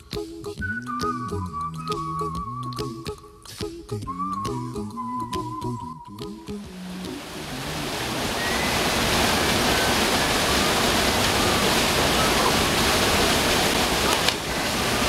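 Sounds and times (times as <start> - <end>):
waterfall rushing into pool: 6.7 - 15.0.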